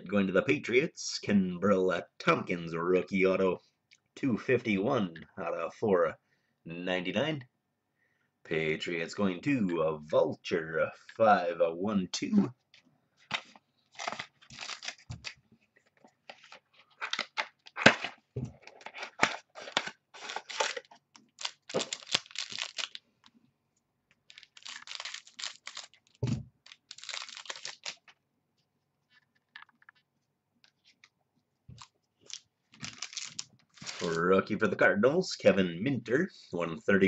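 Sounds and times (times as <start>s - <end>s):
cards rustling: 12.7s - 23.4s, 24.2s - 28.2s, 29.1s - 30.0s, 31.8s - 34.4s
wrapper crinkling and tearing: 13.9s - 15.4s, 16.3s - 23.1s, 24.3s - 28.2s, 31.8s - 34.3s.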